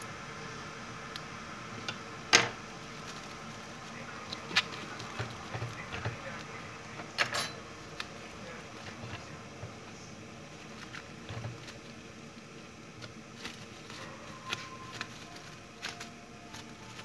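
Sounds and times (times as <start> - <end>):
cling film crinkling: 2.7 - 7.0, 7.8 - 17.0.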